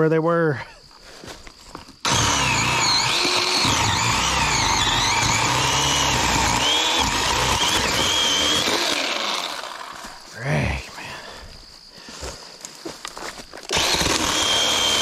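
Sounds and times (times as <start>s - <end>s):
chainsaw cutting branches: 2.0s - 10.2s, 13.7s - 15.0s.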